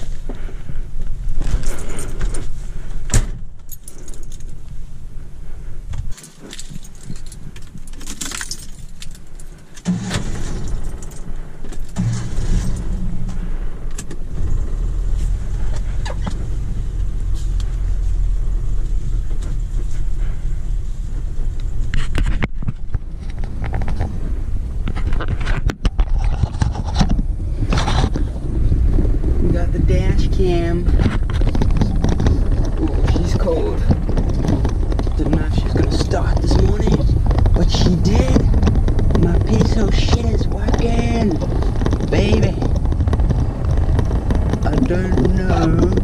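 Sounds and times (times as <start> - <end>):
car engine starting and running: 0.0 - 46.0
keys jangling: 3.7 - 4.6, 6.1 - 9.8
knocks and clatter in car: 29.9 - 46.0.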